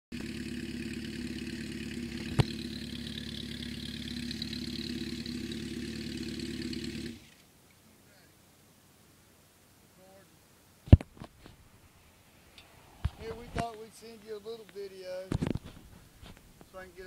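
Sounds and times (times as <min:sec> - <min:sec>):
engine bang: 0:00.1 - 0:07.4
motorcycle engine idling: 0:00.1 - 0:07.4.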